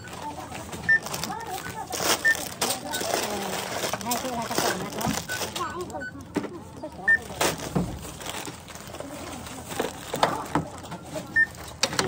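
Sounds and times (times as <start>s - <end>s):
barcode scanner beeps: 0.0s - 3.5s, 4.1s - 7.4s, 11.3s - 11.7s.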